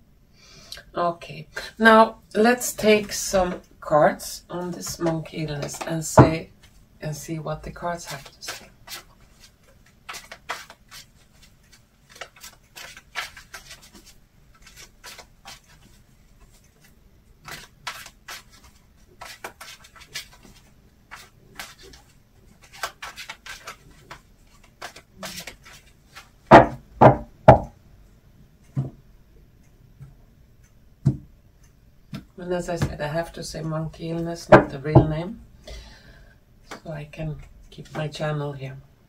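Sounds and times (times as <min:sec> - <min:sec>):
cards being shuffled: 0:04.8 - 0:06.0, 0:08.0 - 0:26.3
knocks on a table: 0:26.5 - 0:27.7.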